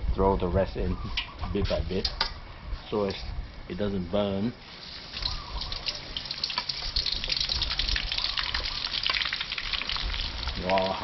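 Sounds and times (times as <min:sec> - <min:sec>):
shallots sizzling in hot oil: 0:04.6 - 0:10.7.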